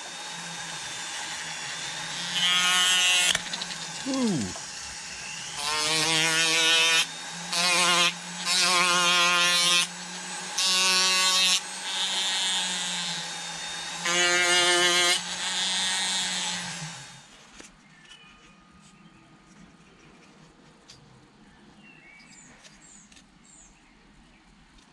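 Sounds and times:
rotary carving tool grinding wood: 0:00.0 - 0:17.4.

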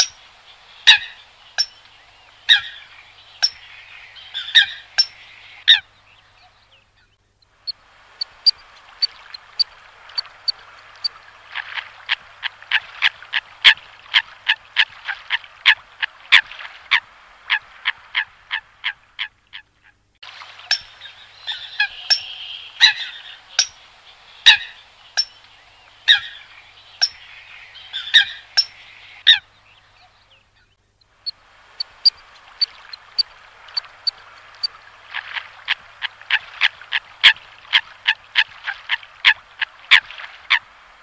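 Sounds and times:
coots calling: 0:00.8 - 0:01.7, 0:02.5 - 0:03.6, 0:20.7 - 0:25.3, 0:26.1 - 0:29.5.

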